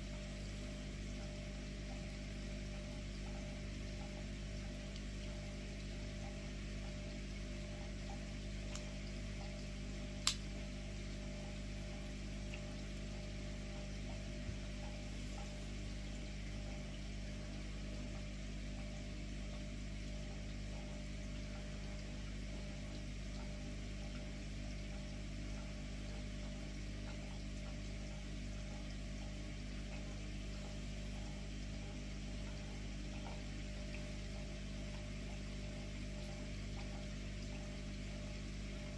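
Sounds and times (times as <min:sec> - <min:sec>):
low hum with hiss: 0:00.0 - 0:38.9
sharp click: 0:10.2 - 0:10.5.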